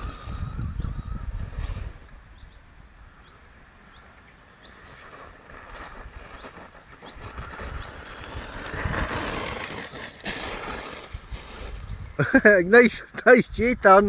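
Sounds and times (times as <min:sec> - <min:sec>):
toy truck driving over gravel: 0:00.0 - 0:02.2, 0:04.7 - 0:12.5.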